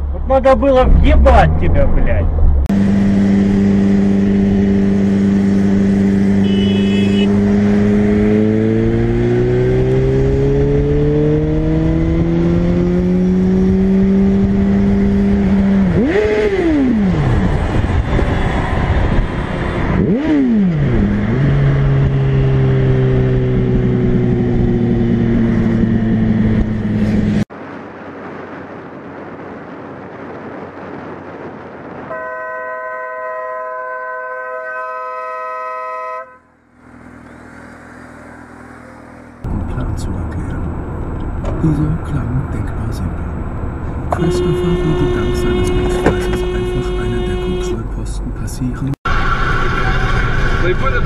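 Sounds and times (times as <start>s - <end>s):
road noise: 0.0s - 51.0s
motorcycle engine accelerating: 2.4s - 27.5s, 36.5s - 42.6s
vehicle horn: 6.4s - 7.7s, 32.1s - 36.6s, 44.1s - 47.9s.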